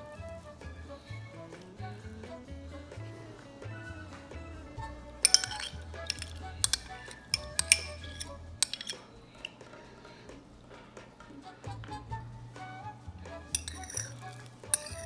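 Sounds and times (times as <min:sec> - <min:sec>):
soft background music: 0:00.0 - 0:15.0
spoon clinking on glass bowl: 0:05.2 - 0:09.1, 0:13.6 - 0:15.0.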